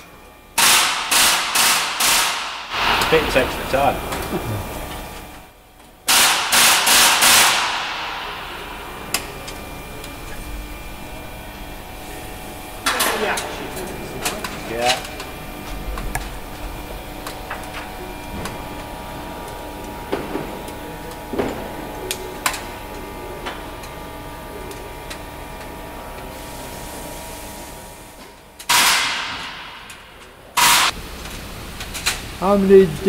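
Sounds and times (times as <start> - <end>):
steady hum: 0.0 - 33.0
loud rush of noise: 2.5 - 4.5, 7.2 - 9.8.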